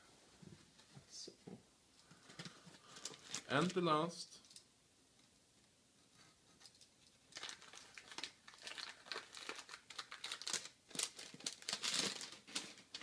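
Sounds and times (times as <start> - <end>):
packing wrap crinkling: 2.2 - 3.8, 6.6 - 13.0.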